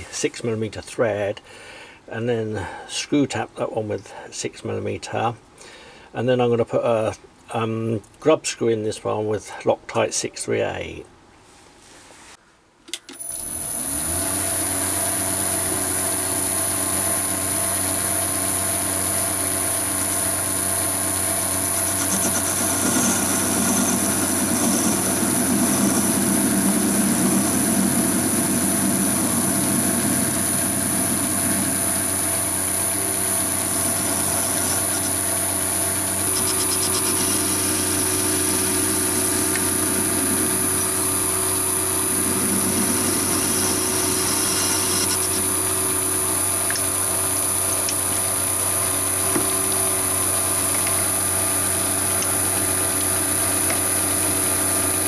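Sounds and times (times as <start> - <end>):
lathe motor whine: 13.2 - 55.0
tool cutting metal: 21.3 - 45.8.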